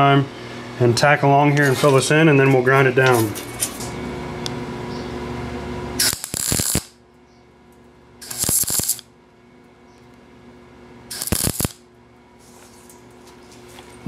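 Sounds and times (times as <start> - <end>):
welding arc bursts: 6.0 - 7.0, 8.2 - 9.1, 11.1 - 11.8.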